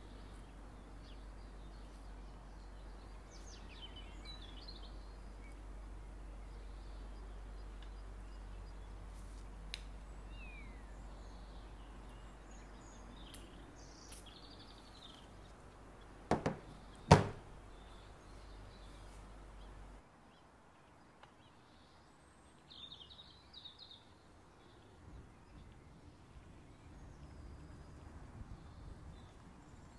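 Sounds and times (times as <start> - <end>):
faint bird chirps: 9.9 - 16.1.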